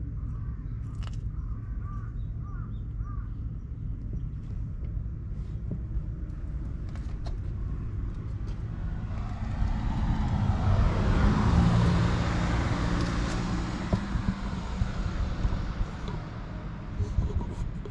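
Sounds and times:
car passing by: 8.4s - 16.8s.

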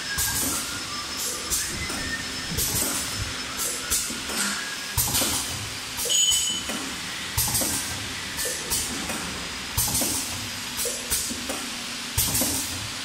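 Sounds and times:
machine mechanical hum: 0.0s - 13.0s
high squeak: 1.5s - 4.9s, 6.0s - 6.7s
machine knock and short hiss: 4.0s - 13.0s.

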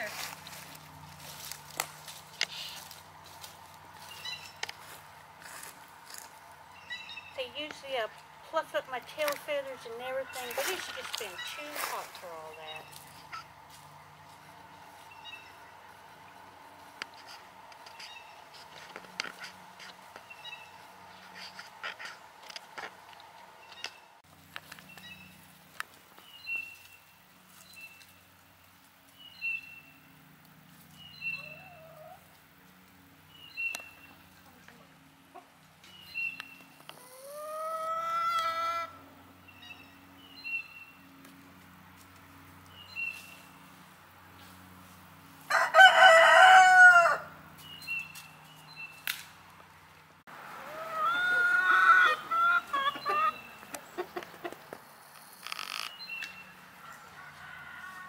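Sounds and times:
roosters crowing: 36.9s - 39.1s, 45.2s - 47.8s, 50.3s - 54.5s, 56.4s - 58.0s.

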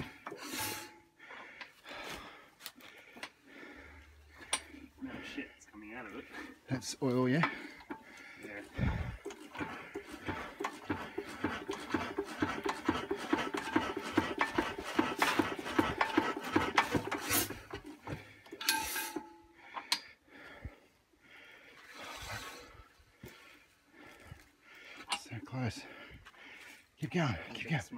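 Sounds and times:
engine flywheels clattering: 6.7s - 20.0s.

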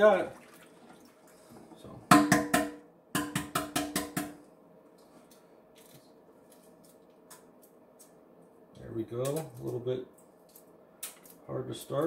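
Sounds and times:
egg tapping on metal sink: 2.1s - 4.4s.

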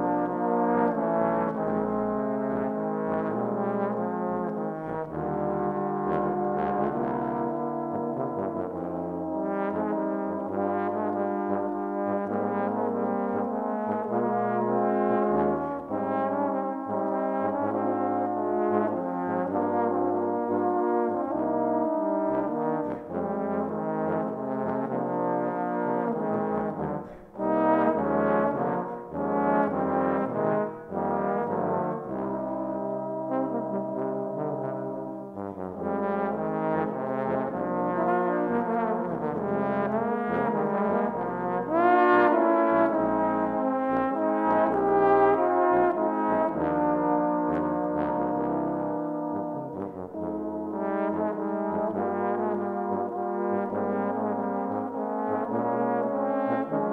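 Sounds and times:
trombone ensemble playing: 0.0s - 56.9s.

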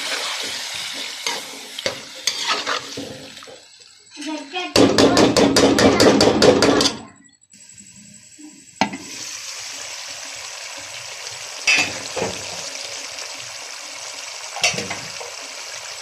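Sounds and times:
spatula scraping metal pot: 0.0s - 3.5s
curry sizzling: 0.0s - 4.5s, 8.9s - 16.0s.

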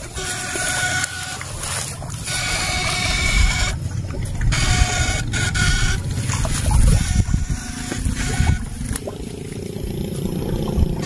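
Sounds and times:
water sloshing and churning: 0.0s - 11.0s
heavy low rumble: 1.3s - 11.0s.

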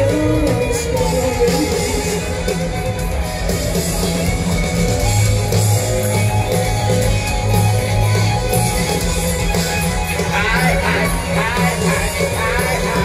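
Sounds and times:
live rock band playing: 0.0s - 13.0s.

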